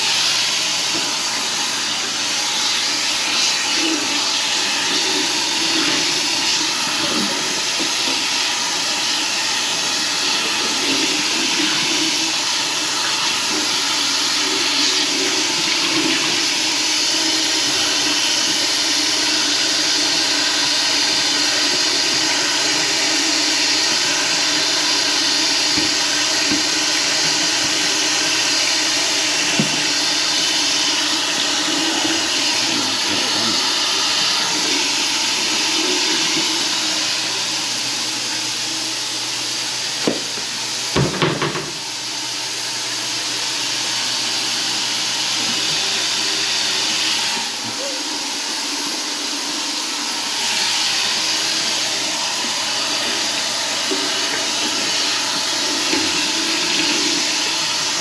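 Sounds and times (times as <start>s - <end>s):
running water rushing: 0.0s - 39.0s, 43.2s - 58.0s.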